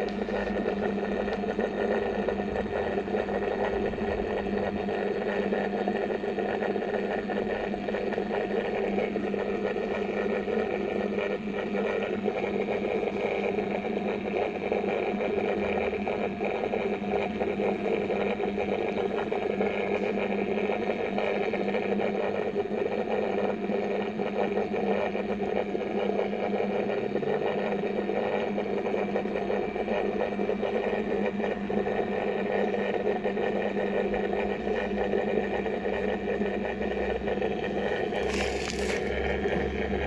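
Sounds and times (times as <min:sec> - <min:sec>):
motor humming: 0:00.0 - 0:20.6, 0:34.6 - 0:40.0.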